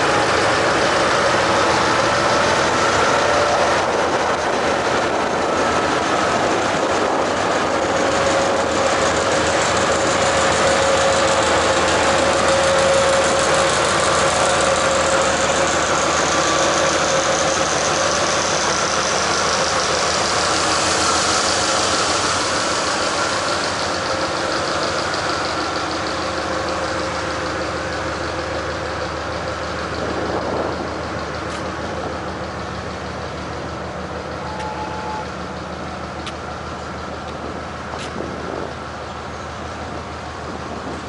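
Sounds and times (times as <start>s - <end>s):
diesel locomotive engine running: 0.0s - 41.0s
hiss: 8.3s - 26.3s.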